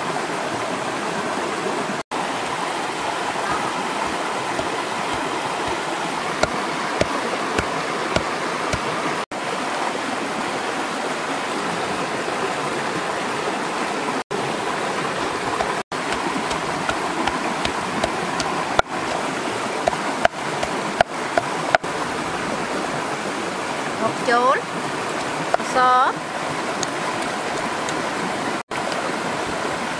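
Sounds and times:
stream rushing over rocks: 0.0 - 29.9
wooden pestle pounding in mortar: 4.0 - 8.9, 15.6 - 19.2.

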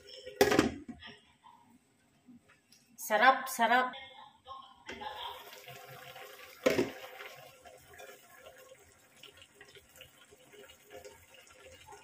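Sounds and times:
sauce simmering and bubbling: 5.0 - 12.0.

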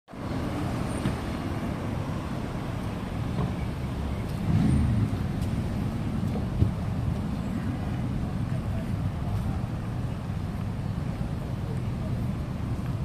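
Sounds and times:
vehicle engines idling in traffic: 0.1 - 13.0.

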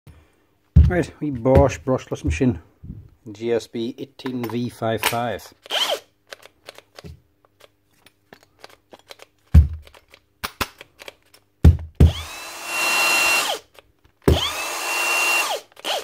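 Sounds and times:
drill motor whining: 5.6 - 6.1, 12.0 - 13.6, 14.3 - 16.0
drill trigger clicks: 5.6 - 7.0, 12.1 - 16.0.

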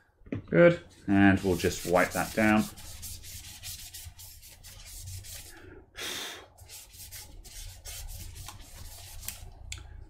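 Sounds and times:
cloth rubbing on metal: 0.9 - 5.6, 6.6 - 9.4.

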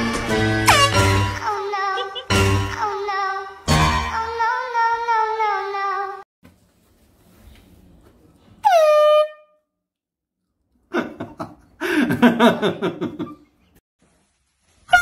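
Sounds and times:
air horn blast: 0.6 - 1.2.

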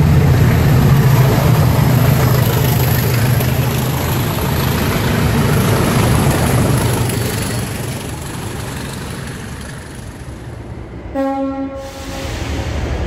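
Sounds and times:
diesel locomotives rumbling: 0.0 - 13.0
locomotive horn blast: 11.1 - 12.4.

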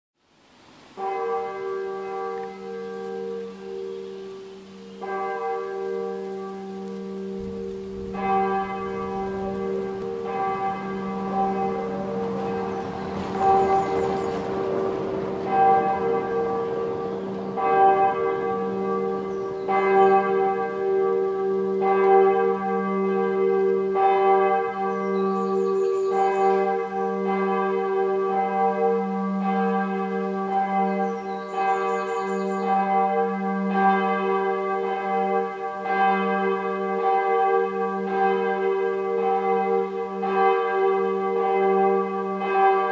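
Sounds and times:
church bell ringing: 1.0 - 42.9.

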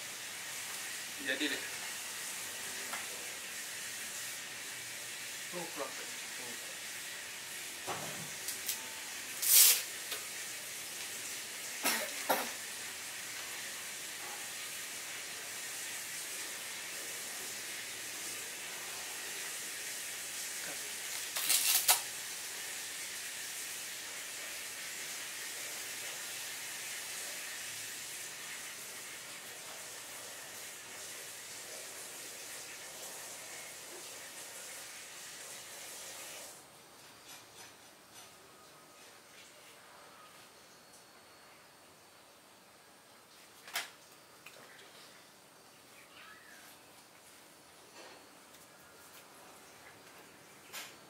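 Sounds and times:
faint steady hiss: 0.0 - 51.0
plastic goggles handling rustles: 21.2 - 22.0.

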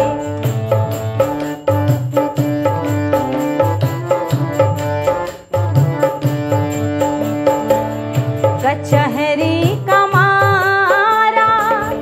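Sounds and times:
hand drum folk rhythm: 0.0 - 12.0
held melodic notes: 0.0 - 12.0.

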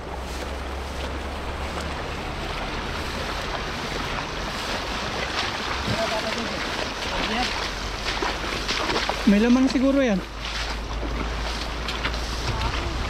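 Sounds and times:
fast-flowing river rushing: 0.0 - 13.0
wind rumbling on microphone: 0.0 - 13.0.

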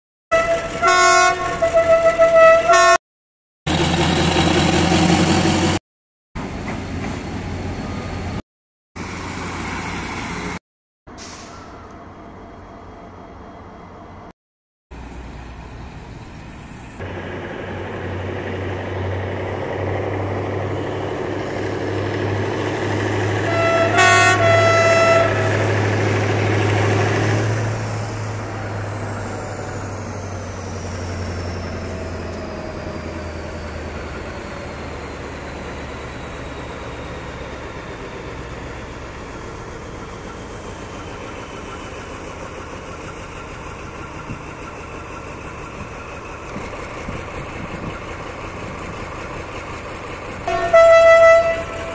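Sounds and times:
diesel locomotive engine: 0.3 - 3.0, 3.7 - 5.8, 6.4 - 8.4, 9.0 - 14.3, 14.9 - 51.9
locomotive horn toots: 0.3 - 3.0, 23.3 - 25.9, 50.4 - 51.9.

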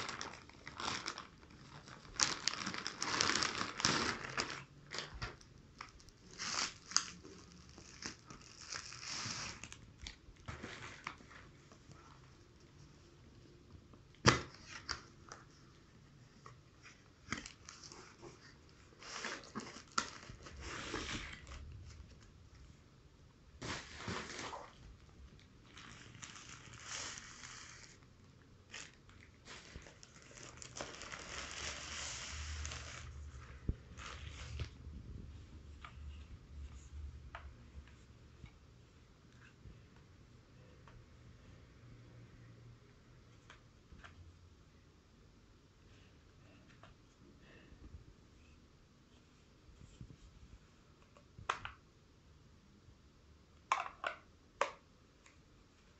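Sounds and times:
plastic mailer tearing and crinkling: 0.0 - 11.3, 28.7 - 33.2.

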